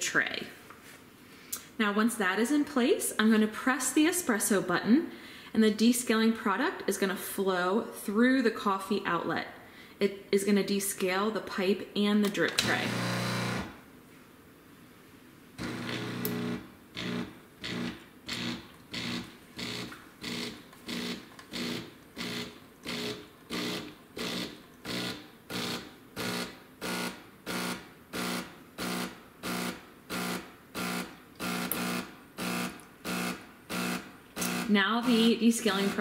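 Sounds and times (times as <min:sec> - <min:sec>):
pulsing pump buzz: 0:12.6 - 0:13.7, 0:15.6 - 0:36.0.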